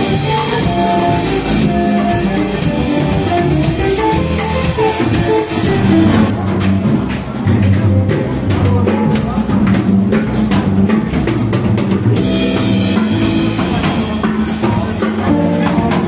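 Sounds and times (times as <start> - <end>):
steady drum beat: 0.0 - 7.4
instrumental music with held notes: 0.0 - 9.1.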